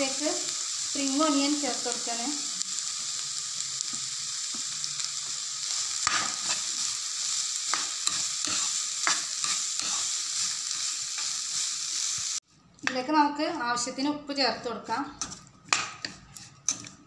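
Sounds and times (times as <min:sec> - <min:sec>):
vegetables sizzling in a pan: 0:00.0 - 0:12.4.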